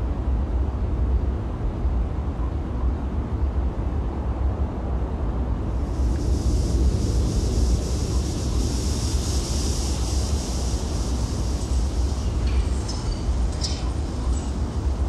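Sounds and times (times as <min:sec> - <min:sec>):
steady outdoor rumble: 0:00.0 - 0:15.0
hiss: 0:05.7 - 0:15.0.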